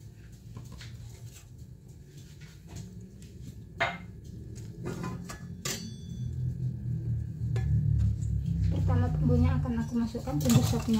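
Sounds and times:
steady low hum: 0:00.0 - 0:10.4
pots and utensils clattering: 0:04.8 - 0:06.4, 0:10.2 - 0:10.9.

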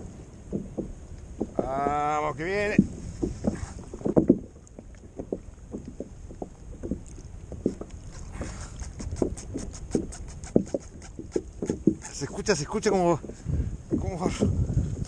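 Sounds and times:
waves slapping a kayak hull: 0:00.0 - 0:15.0
fast light ticks: 0:08.7 - 0:13.0.

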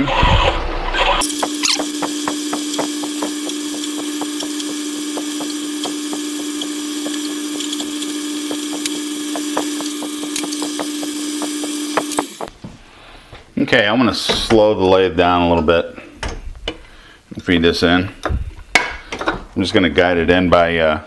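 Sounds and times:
lathe hum: 0:01.2 - 0:12.5.

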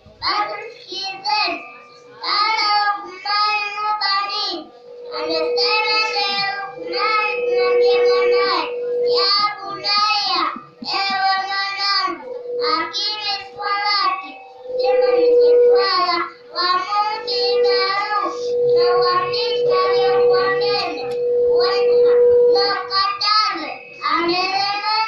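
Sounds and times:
boy preaching into a microphone: 0:00.0 - 0:25.0
steady tone: 0:00.0 - 0:25.0.

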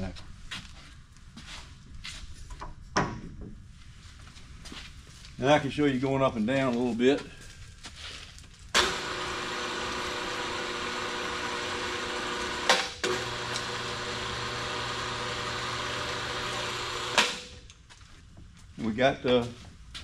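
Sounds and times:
hydraulic pump motor running: 0:08.8 - 0:17.6.

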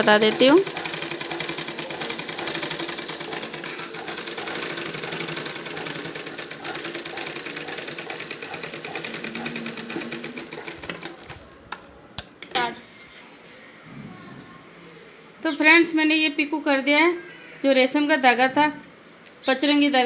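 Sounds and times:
sewing machine clattering: 0:00.0 - 0:11.9.

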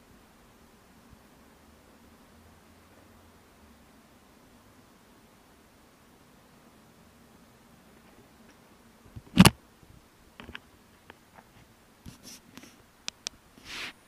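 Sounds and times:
light clicks and rustles: 0:10.4 - 0:14.0.

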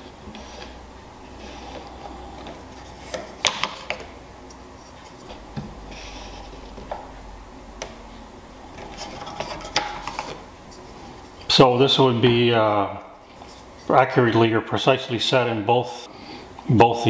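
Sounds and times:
wood sliding rub: 0:08.6 - 0:11.4.

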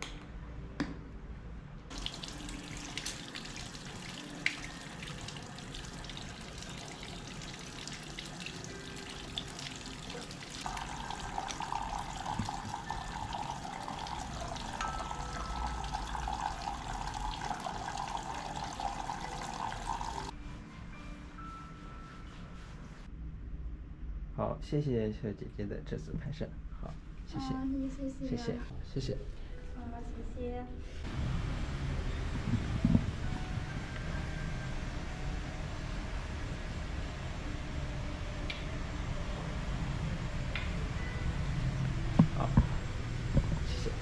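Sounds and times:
tap water running into basin: 0:01.9 - 0:20.3.

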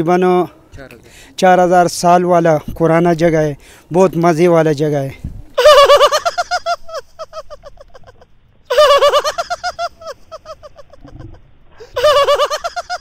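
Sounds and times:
high-pitched comic laughter: 0:05.6 - 0:13.0.

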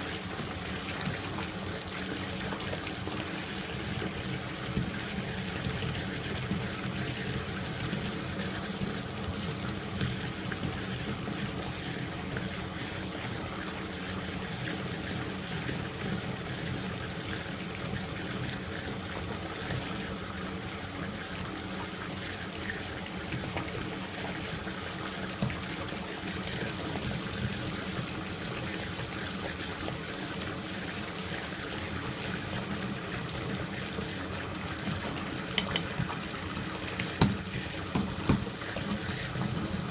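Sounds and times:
bathtub faucet running: 0:00.0 - 0:39.9
water splashing into a tub: 0:17.3 - 0:39.9.

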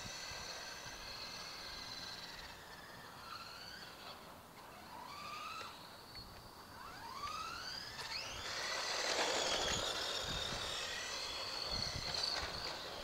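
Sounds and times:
rc car motor whining: 0:00.0 - 0:13.0
tyre noise on asphalt: 0:00.0 - 0:13.0.

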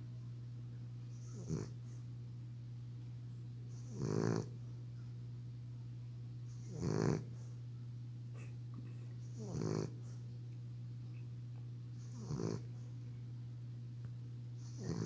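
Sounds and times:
dog snoring: 0:01.1 - 0:02.0, 0:03.7 - 0:04.6, 0:06.5 - 0:07.6, 0:09.2 - 0:10.2, 0:12.0 - 0:12.9, 0:14.6 - 0:15.0.

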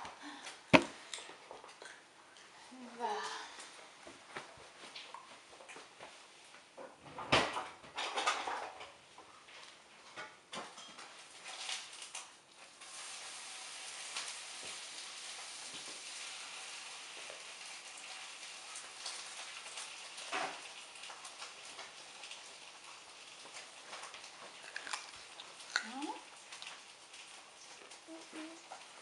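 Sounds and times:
steady hiss: 0:12.7 - 0:24.0.

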